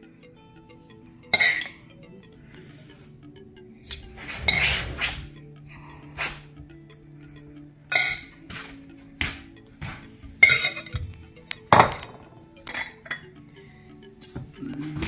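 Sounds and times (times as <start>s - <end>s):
soft background music: 0.0s - 15.0s
metal utensils clinking on bowls: 1.3s - 1.8s, 7.9s - 8.6s, 10.4s - 13.3s.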